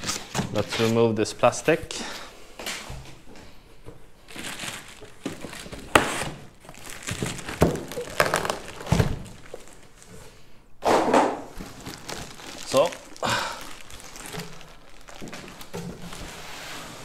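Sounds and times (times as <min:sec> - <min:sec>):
plastic wrapping crinkling: 0:00.0 - 0:01.1, 0:04.2 - 0:10.4, 0:11.5 - 0:17.0.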